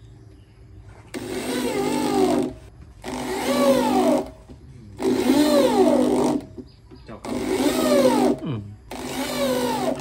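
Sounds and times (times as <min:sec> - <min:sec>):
electric drill driving screws: 0:01.1 - 0:04.4, 0:05.0 - 0:06.6, 0:07.2 - 0:10.0.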